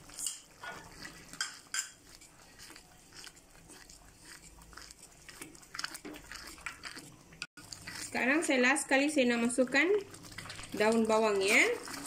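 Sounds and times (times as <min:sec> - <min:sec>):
wooden spatula scraping a wok: 0:00.0 - 0:05.3.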